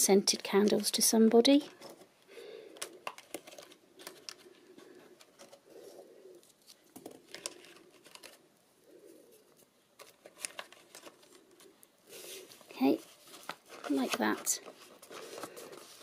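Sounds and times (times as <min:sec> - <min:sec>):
candles clicking in paper box: 0:02.7 - 0:05.7, 0:06.4 - 0:08.5, 0:10.0 - 0:11.9
pigeon cooing: 0:08.8 - 0:09.6.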